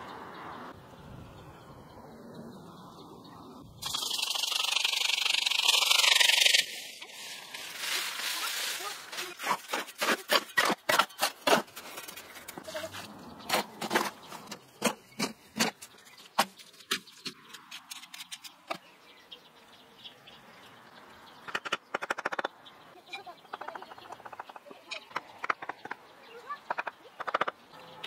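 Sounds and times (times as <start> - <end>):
trowel scraping wet mortar: 7.8 - 15.9.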